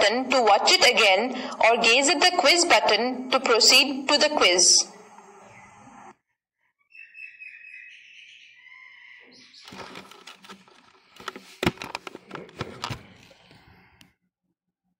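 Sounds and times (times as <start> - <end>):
faint high chirping: 6.8 - 9.8
phone handling rustling and knocks: 9.6 - 13.4.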